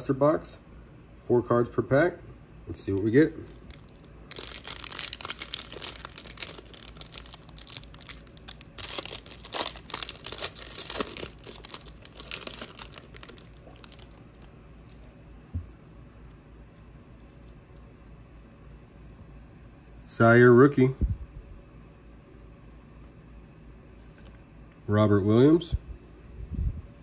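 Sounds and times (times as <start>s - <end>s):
foil wrapper crinkling and tearing: 2.8s - 15.1s.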